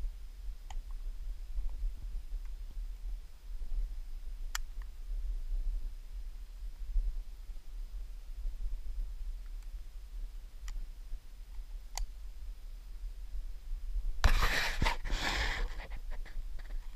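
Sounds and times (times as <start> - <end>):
steady low rumble: 0.0 - 16.9
faint clicks: 0.6 - 1.0
fingers scratching on camera: 14.2 - 16.9.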